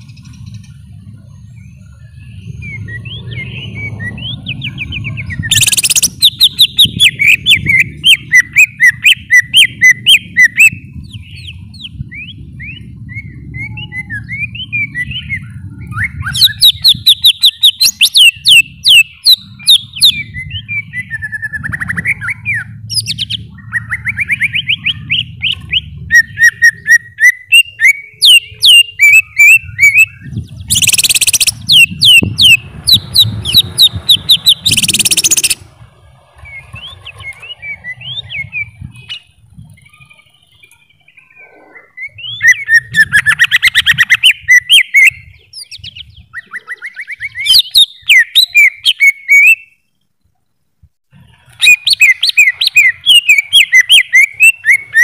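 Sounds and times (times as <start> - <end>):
low rumble: 0.0 - 8.3, 9.7 - 17.1
bird singing whistles and trills: 0.0 - 35.7, 36.4 - 49.9, 51.6 - 55.0
harsh rasping bird bursts: 30.7 - 38.5.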